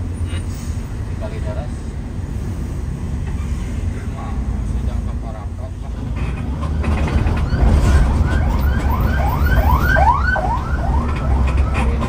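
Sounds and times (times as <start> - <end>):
bus rumbling: 0.0 - 12.0
siren-like electronic wail: 7.1 - 12.0.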